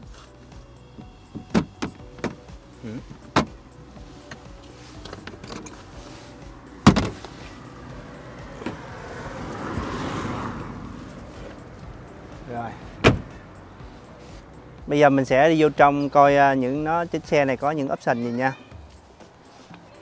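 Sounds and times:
trunk lid slamming: 0:01.3 - 0:03.6, 0:06.8 - 0:07.6, 0:08.5 - 0:09.0, 0:12.9 - 0:13.4.

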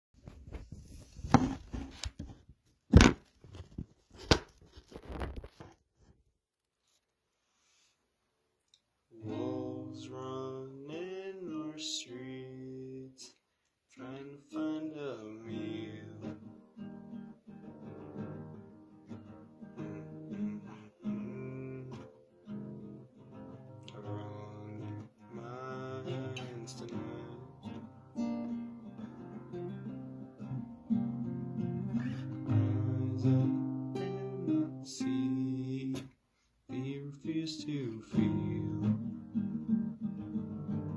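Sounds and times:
nylon-string guitar playing: 0:09.2 - 0:12.8, 0:14.5 - 0:36.0, 0:36.7 - 0:40.9.

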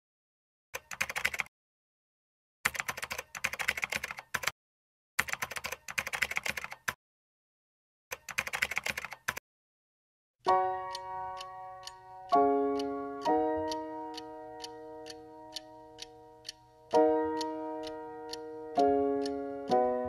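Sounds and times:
keyboard typing: 0:00.8 - 0:01.5, 0:02.6 - 0:04.5, 0:05.2 - 0:07.0, 0:08.1 - 0:09.4
music with sustained notes: 0:10.5 - 0:20.0.

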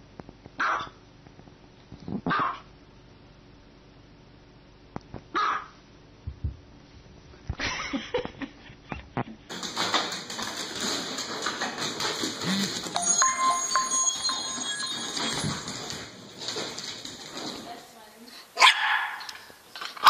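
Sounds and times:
music with electronic beeping tones: 0:12.4 - 0:15.9.

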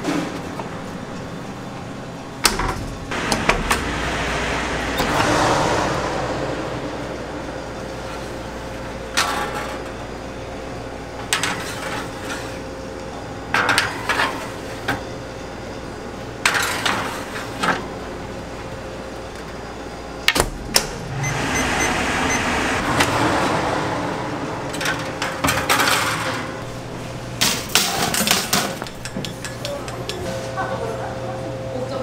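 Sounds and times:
rushing noise: 0:02.5 - 0:11.0, 0:19.7 - 0:27.3.

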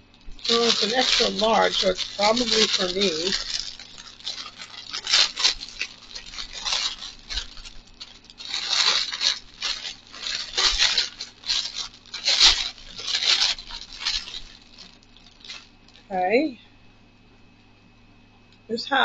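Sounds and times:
plastic bag crinkling: 0:00.0 - 0:16.2.

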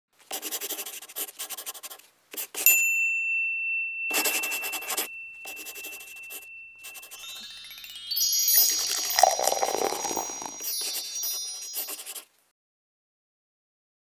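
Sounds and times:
pencil writing on paper: 0:00.2 - 0:02.7, 0:04.1 - 0:07.4, 0:09.2 - 0:12.3
bright ringing ding: 0:02.7 - 0:11.9.

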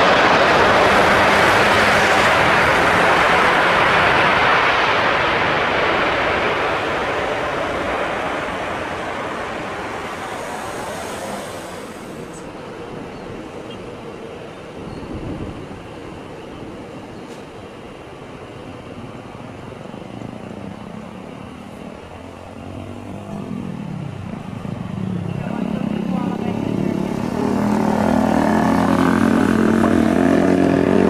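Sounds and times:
jet engines running loud: 0:00.0 - 0:31.0.

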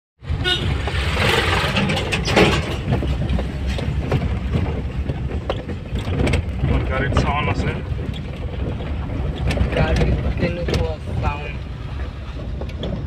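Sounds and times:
road and engine rumble: 0:00.2 - 0:13.0
dashboard knocks and rattles: 0:00.9 - 0:11.3.

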